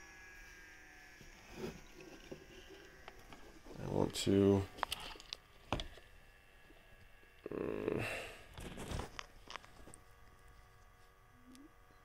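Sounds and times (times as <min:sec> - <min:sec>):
rustling scrape: 0:08.6 - 0:10.0.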